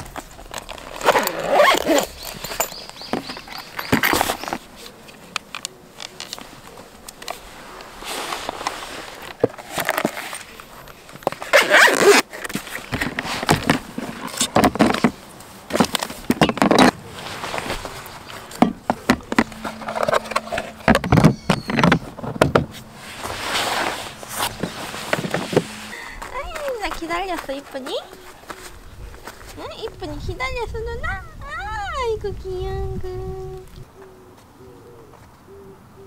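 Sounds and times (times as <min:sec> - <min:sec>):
gear rustling: 0:00.0 - 0:29.7
scrapes: 0:06.0 - 0:29.8.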